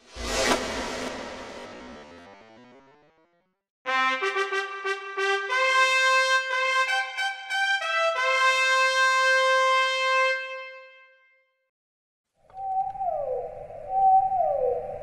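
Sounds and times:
trumpet brass fanfare: 3.9 - 11.4.

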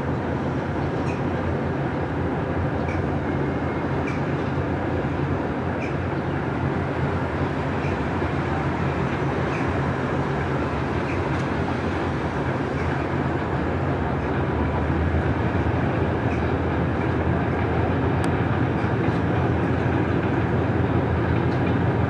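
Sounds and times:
diesel locomotive engine running: 0.0 - 22.0.

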